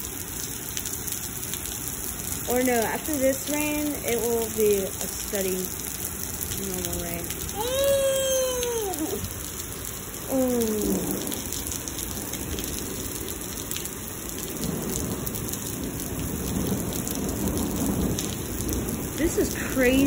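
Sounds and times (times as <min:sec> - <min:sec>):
heavy rain on pavement: 0:00.0 - 0:20.0
low rumbling thunder: 0:10.6 - 0:20.0.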